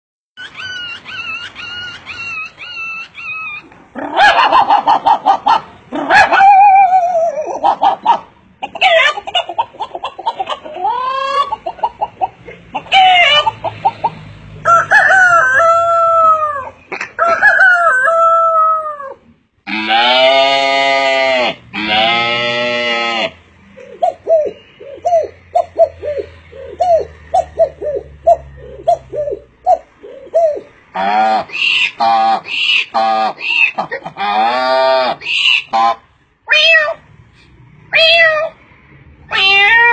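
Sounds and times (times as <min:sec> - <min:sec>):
man imitating animal calls: 0:18.7 - 0:37.0.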